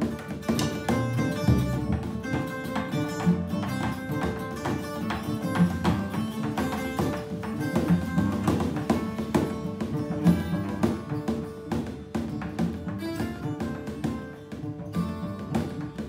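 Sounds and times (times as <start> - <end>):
drums struck with beaters: 0.0 - 14.7
bowed cello: 0.0 - 16.0
twelve-string guitar plucked and strummed: 0.0 - 16.0.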